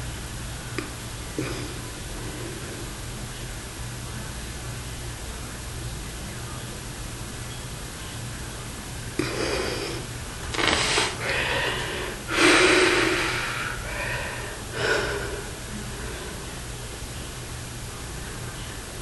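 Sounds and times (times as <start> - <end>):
low electrical hum: 0.0 - 19.0
man breathing hard: 9.2 - 16.6.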